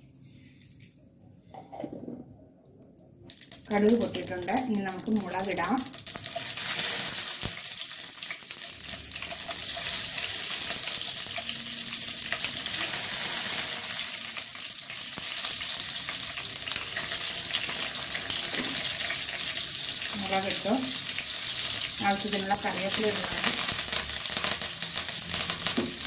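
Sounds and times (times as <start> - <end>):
crackles and pops: 3.3 - 9.6
spices sizzling in hot oil: 3.3 - 26.0.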